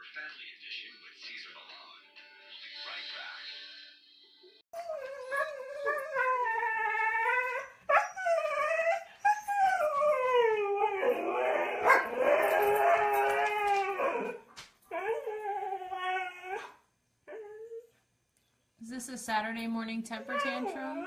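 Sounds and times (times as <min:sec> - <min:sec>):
dog howling: 0:04.8 - 0:17.9, 0:20.2 - 0:21.0.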